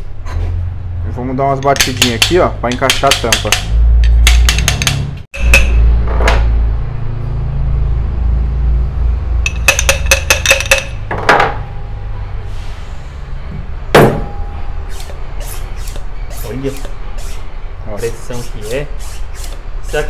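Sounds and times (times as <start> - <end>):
hammer tapping on metal: 1.6 - 5.9, 9.5 - 11.1
low steady hum: 13.4 - 17.9.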